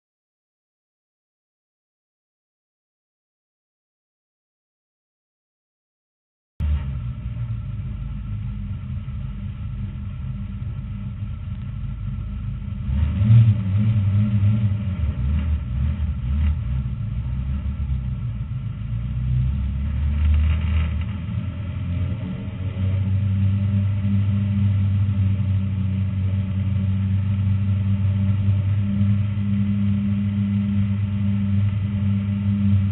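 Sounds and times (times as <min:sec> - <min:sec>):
race car engine rumble: 0:06.6 - 0:32.9.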